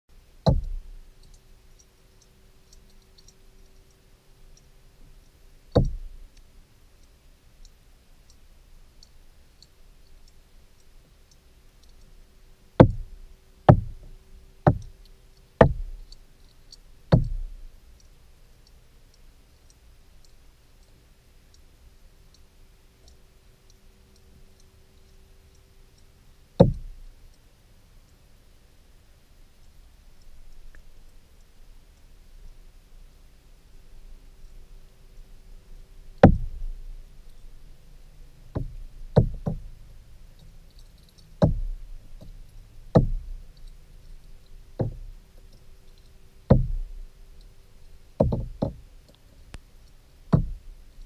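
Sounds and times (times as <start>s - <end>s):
faint high ticking: 0.1s - 51.0s
faint steady hum: 0.1s - 51.0s
dull underwater knocks: 0.5s - 0.9s, 5.7s - 6.2s, 12.8s - 14.1s, 14.7s - 14.9s, 15.6s - 16.0s, 17.1s - 17.6s, 26.6s - 27.0s, 36.2s - 36.8s, 38.6s - 39.7s, 41.4s - 42.4s, 43.0s - 43.4s, 44.8s - 45.1s, 46.5s - 47.0s, 48.2s - 48.8s, 50.3s - 50.7s.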